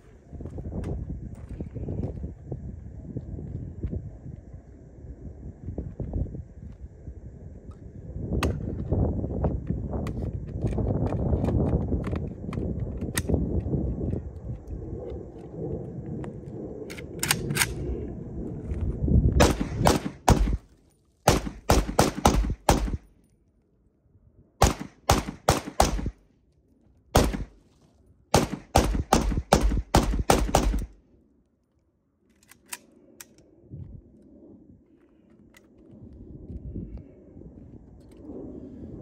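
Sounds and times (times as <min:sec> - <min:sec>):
rifle gunshots: 0:19.4 - 0:20.6, 0:21.3 - 0:23.0, 0:24.6 - 0:26.2, 0:27.2 - 0:27.6, 0:28.3 - 0:30.9.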